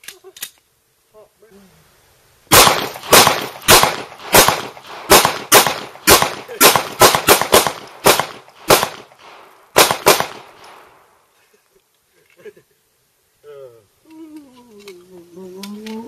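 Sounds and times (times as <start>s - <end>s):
handgun shots: 2.5s - 10.9s.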